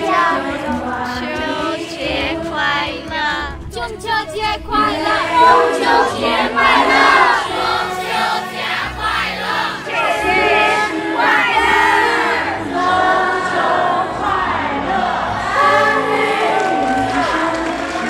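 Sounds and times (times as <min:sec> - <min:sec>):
background music: 0:00.0 - 0:18.0
groups calling out in unison: 0:04.8 - 0:17.5.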